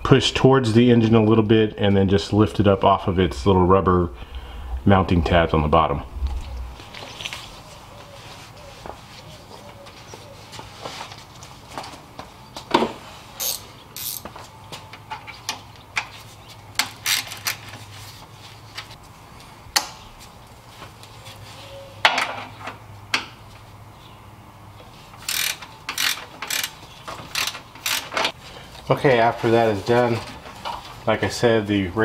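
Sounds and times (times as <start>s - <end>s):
socket ratchet clicking: 25.2s - 26.8s, 27.4s - 28.2s.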